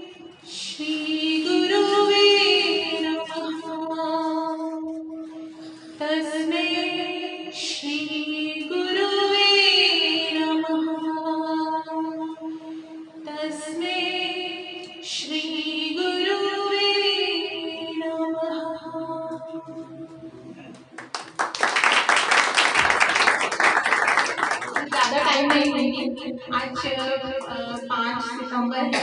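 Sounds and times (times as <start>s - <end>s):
woman singing devotional song: 0.0s - 5.1s, 6.0s - 19.9s, 25.0s - 29.0s
held accompaniment drone note: 10.4s - 21.1s.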